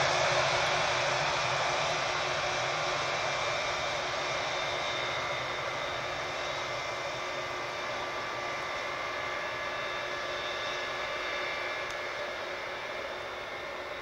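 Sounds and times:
jet engines running: 0.0 - 14.0.

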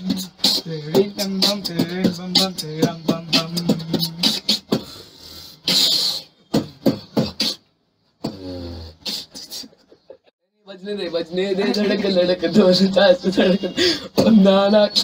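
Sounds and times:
beatboxing kick and snare clicks: 0.0 - 10.0, 14.2 - 15.0.

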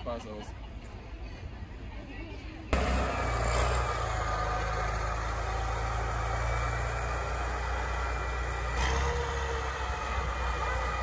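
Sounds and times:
tracked vehicle engine running: 2.7 - 11.0.

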